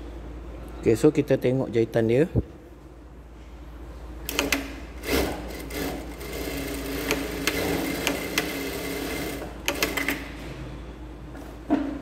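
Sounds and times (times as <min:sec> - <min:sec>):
sewing machine stitching: 0:04.3 - 0:10.2.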